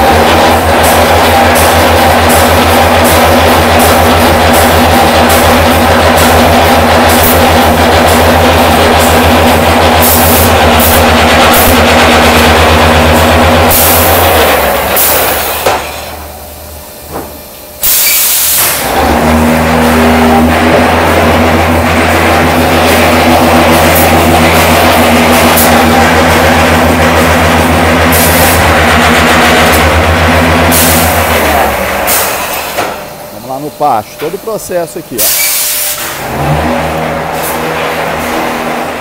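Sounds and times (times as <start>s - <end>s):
rapid machine knocking: 0.0s - 15.9s, 19.0s - 32.5s
block-making machine humming: 0.0s - 39.0s.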